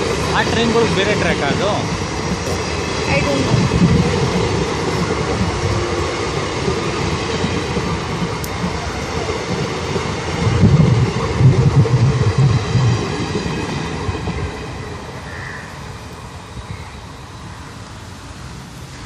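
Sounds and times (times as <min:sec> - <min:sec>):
train wheels rumbling on track: 0:00.0 - 0:19.0.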